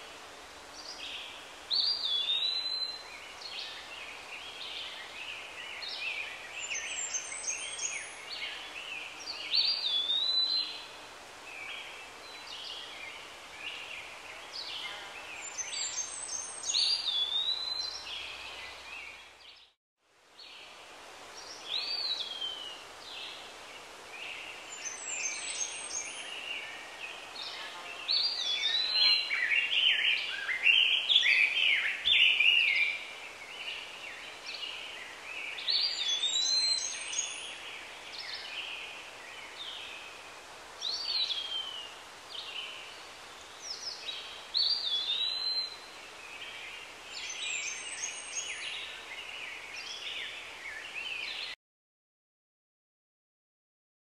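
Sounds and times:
faint steady hiss: 0:00.0 - 0:51.6
birds chirping and whistling: 0:35.7 - 0:37.5.

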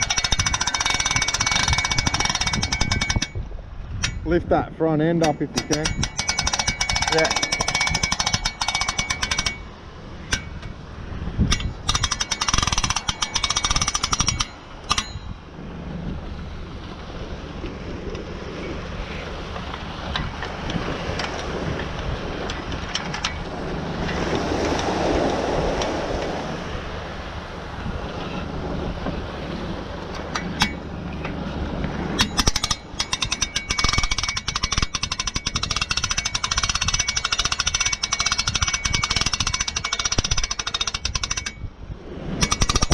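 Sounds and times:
winch ratchet clicking: 0:00.0 - 0:03.4, 0:05.2 - 0:09.7, 0:11.5 - 0:15.4, 0:32.2 - 0:41.7, 0:42.4 - 0:42.9
steady rushing noise: 0:00.0 - 0:42.9.

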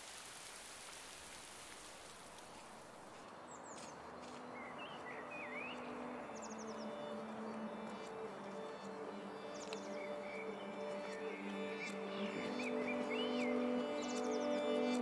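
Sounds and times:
rain falling on water: 0:00.0 - 0:03.2
soft music tones: 0:03.2 - 0:15.0
birds chirping and whistling: 0:03.6 - 0:15.0.

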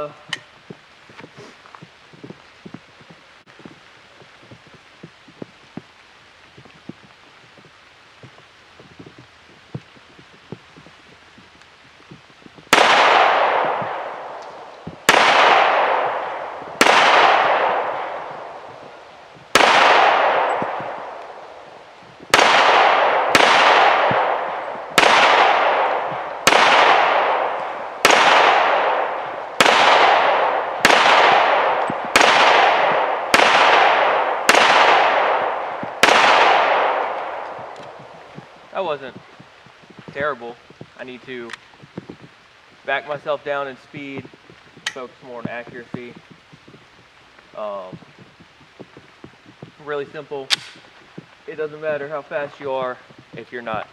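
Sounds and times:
pistol shots echoing: 0:12.7 - 0:21.7, 0:22.3 - 0:38.9.

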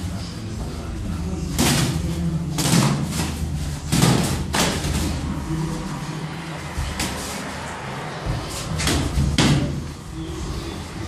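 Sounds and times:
boxing gloves and kicks striking: 0:01.6 - 0:05.1.

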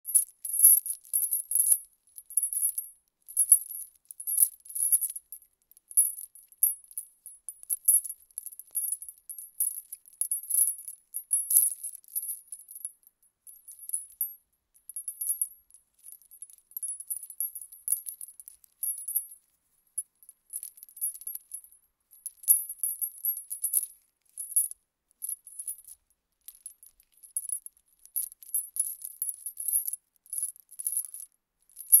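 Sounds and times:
small metal chain jingling: 0:00.1 - 0:32.0.

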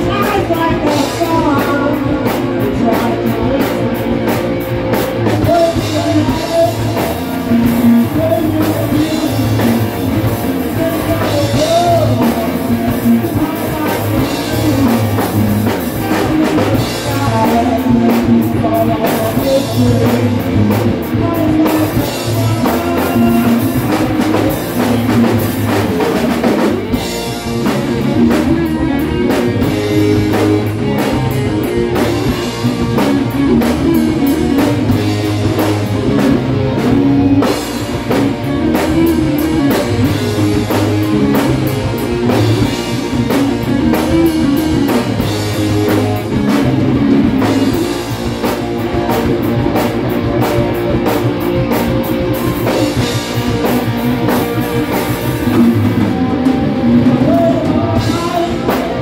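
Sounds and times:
drum kit: 0:00.0 - 0:59.0
electric guitars: 0:00.0 - 0:59.0.

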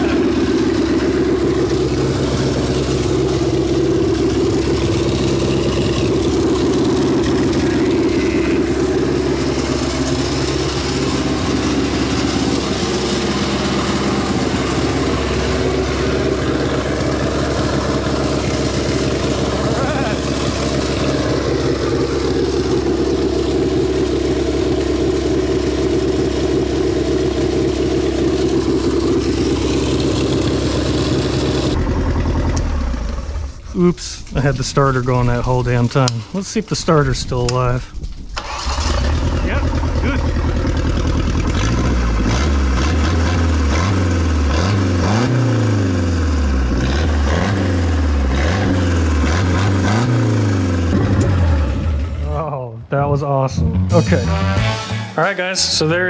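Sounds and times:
boat engine running: 0:00.0 - 0:36.1, 0:38.2 - 0:52.6
starter motor engaged: 0:38.1 - 0:42.3.

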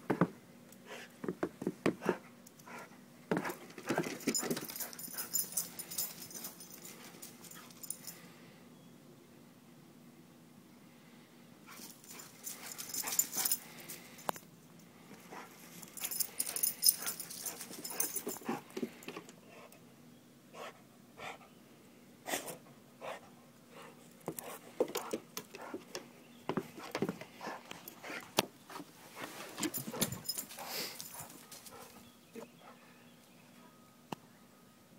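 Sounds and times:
paws tapping on wooden steps: 0:24.2 - 0:28.8
dog panting: 0:29.8 - 0:32.0.

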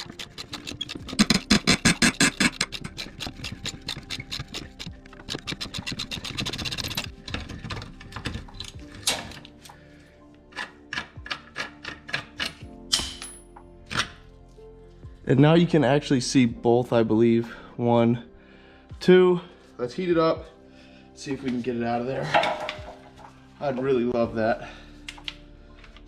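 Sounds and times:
ratcheting wrench clicking: 0:00.0 - 0:09.5
background music: 0:00.0 - 0:26.0.

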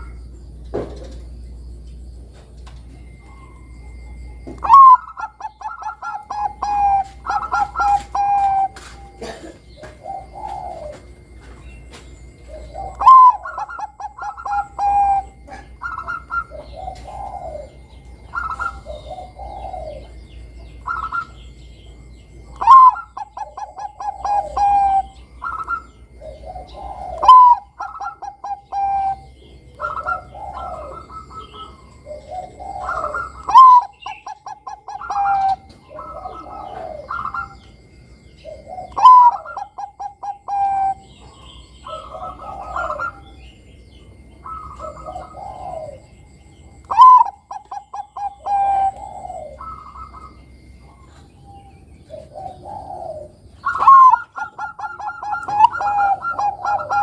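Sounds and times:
dove cooing song: 0:00.0 - 0:57.0.

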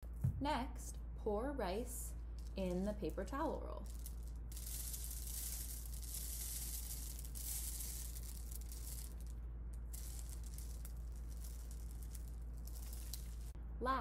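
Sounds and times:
rice trickling into tube: 0:03.8 - 0:13.6.

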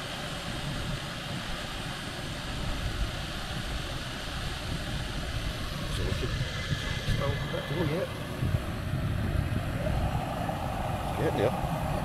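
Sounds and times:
gas stoves hissing: 0:00.0 - 0:12.0
low rumble: 0:05.2 - 0:12.0.

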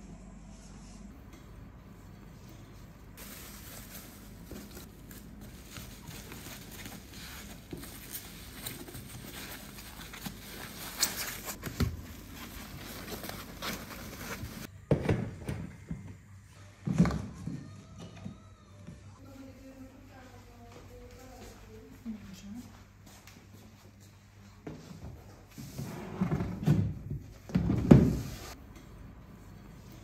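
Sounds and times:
bubble wrap rustling: 0:03.2 - 0:14.7.

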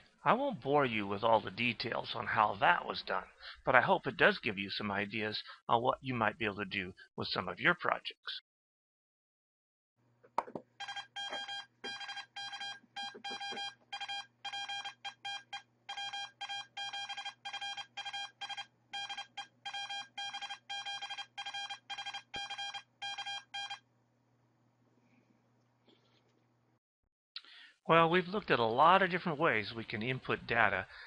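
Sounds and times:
morse code beeping tone: 0:10.8 - 0:23.8.

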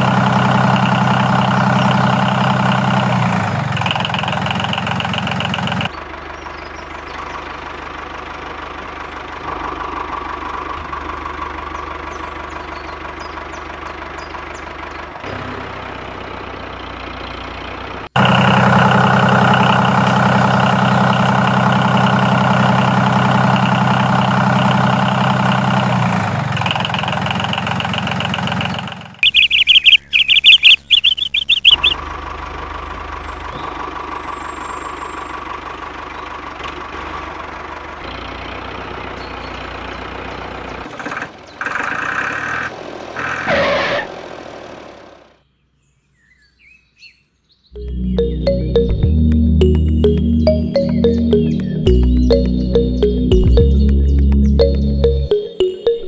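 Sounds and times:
toy tractor engine drone: 0:00.0 - 0:05.9, 0:13.4 - 0:43.6
loud choppy high chirping: 0:29.2 - 0:32.0.

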